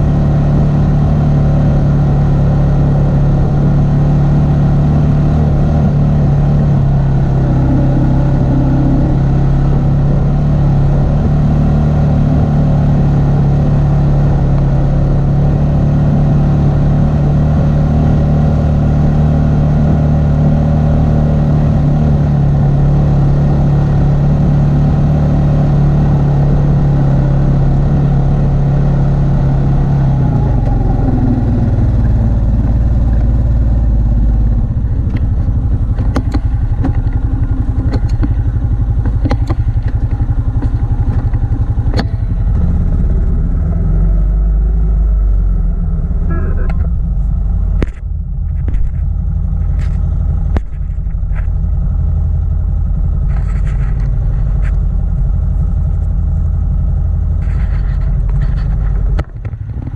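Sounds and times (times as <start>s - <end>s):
quad engine running: 0.0s - 59.9s
sharp knocks and clatter: 35.1s - 42.3s, 47.8s - 51.6s, 57.4s - 59.9s.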